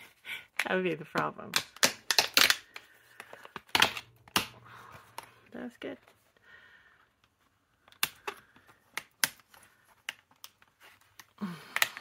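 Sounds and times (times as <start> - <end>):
plastic clicks: 0.6 - 4.6, 7.2 - 12.0.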